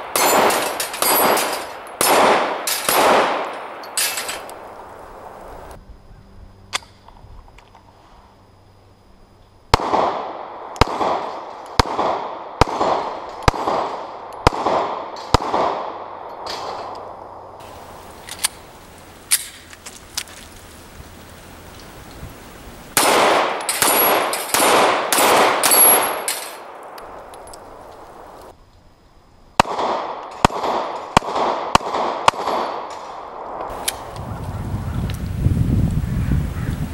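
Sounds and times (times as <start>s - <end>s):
pistol shots with echo: 0.0s - 4.3s, 9.7s - 16.9s, 23.0s - 26.9s, 29.6s - 33.2s.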